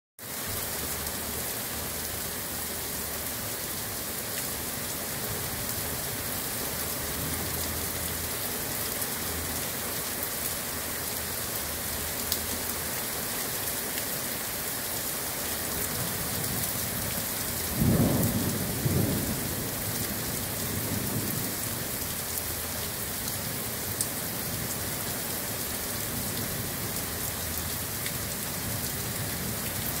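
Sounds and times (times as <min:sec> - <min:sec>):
heavy rain falling: 0:00.2 - 0:30.0
low rumble of thunder: 0:17.6 - 0:21.7.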